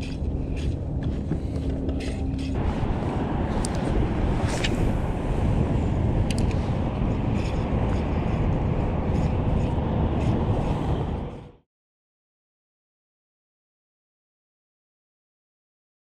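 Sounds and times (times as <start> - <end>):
wind rumble on microphone: 0.0 - 11.6.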